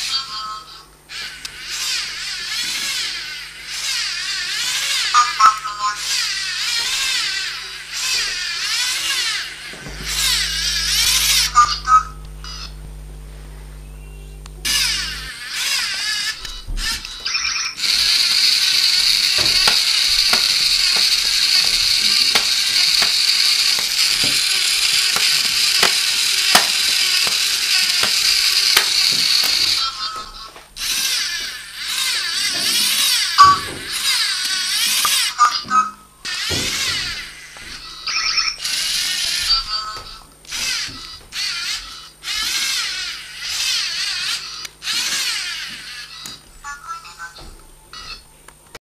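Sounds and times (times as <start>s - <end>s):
electronic hum: 5.2s - 40.3s
high electronic noise: 9.8s - 15.5s, 17.5s - 30.0s
processed robotic voice: 10.0s - 12.8s, 38.1s - 40.3s, 46.0s - 48.3s.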